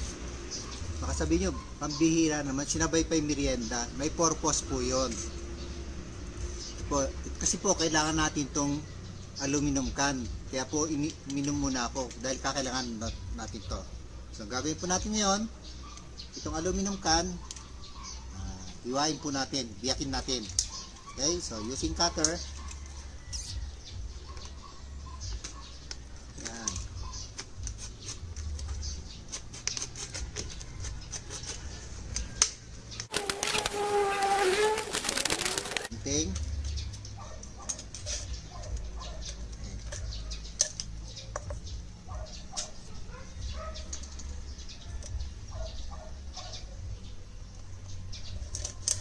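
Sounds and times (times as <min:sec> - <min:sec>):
thin metal scraping and crinkling: 0:25.3 - 0:41.5, 0:48.2 - 0:49.0.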